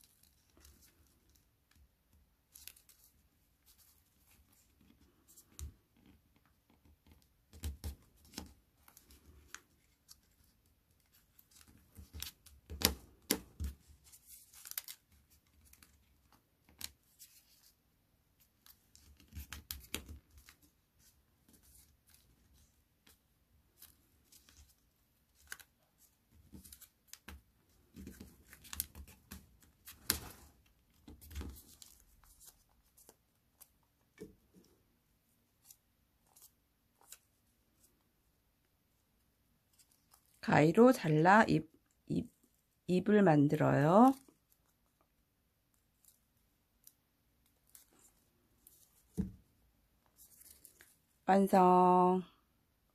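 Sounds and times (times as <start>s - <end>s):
paper rustling and crinkling: 2.4s - 5.8s, 7.6s - 17.8s, 18.4s - 34.7s, 35.5s - 38.0s, 45.7s - 51.2s.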